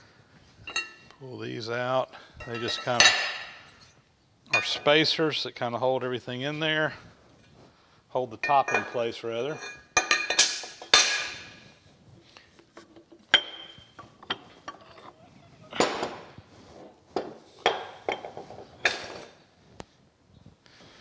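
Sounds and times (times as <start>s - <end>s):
metal parts clanking: 12.8s - 16.3s.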